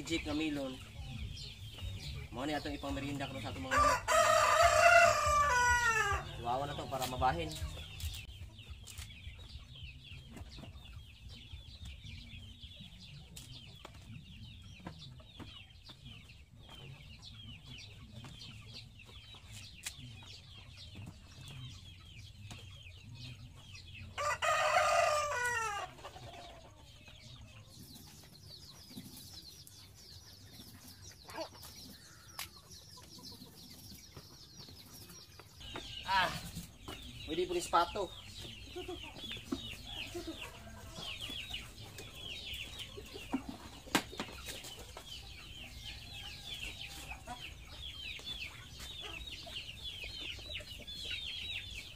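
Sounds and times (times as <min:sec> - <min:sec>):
chickens clucking faintly: 0:00.0 - 0:51.9
rooster crowing: 0:03.7 - 0:06.2, 0:24.2 - 0:25.9.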